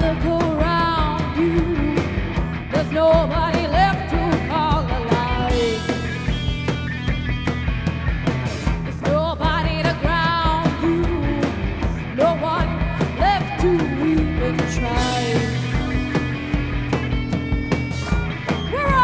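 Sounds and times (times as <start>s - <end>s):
woman singing: 0.0s - 6.3s, 8.9s - 16.8s, 18.7s - 19.0s
electric guitars: 0.0s - 19.0s
drum beat: 3.6s - 19.0s.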